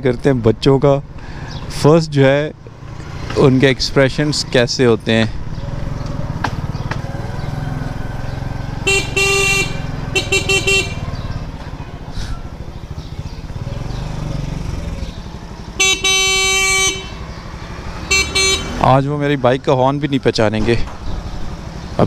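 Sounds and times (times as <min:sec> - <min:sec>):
motorcycle engine idling: 0:04.1 - 0:18.8, 0:20.9 - 0:22.0
motorcycle horn: 0:08.8 - 0:11.4, 0:15.6 - 0:18.9.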